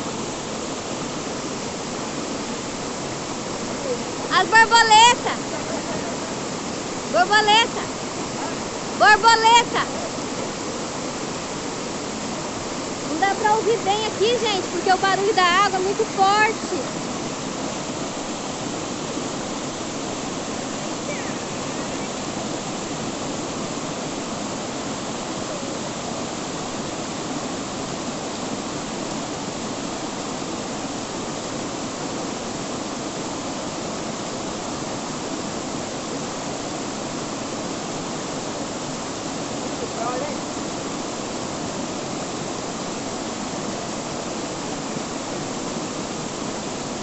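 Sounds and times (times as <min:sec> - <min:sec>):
waterfall rushing: 0:00.0 - 0:47.0.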